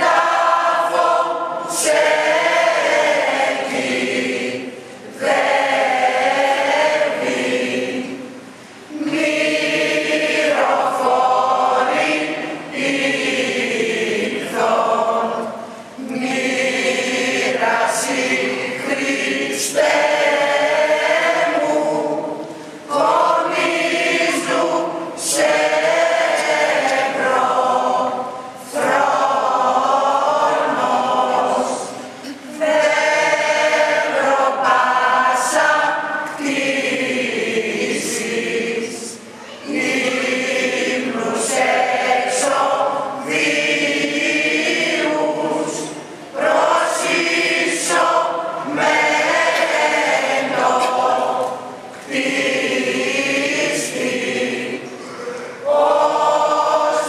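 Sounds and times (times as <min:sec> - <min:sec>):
women's choir chanting a hymn: 0:00.0 - 0:57.0
singers breathing: 0:54.9 - 0:55.6.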